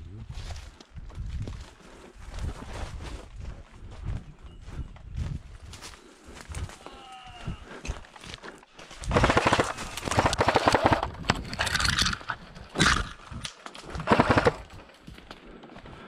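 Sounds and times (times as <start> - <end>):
airsoft rifle firing bursts: 9.0 - 12.2, 14.0 - 14.8.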